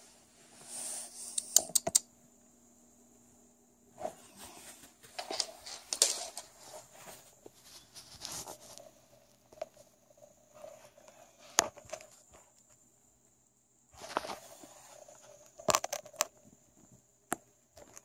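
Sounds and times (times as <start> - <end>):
rustling and scuffing: 3.9 - 9.9, 14.0 - 15.4.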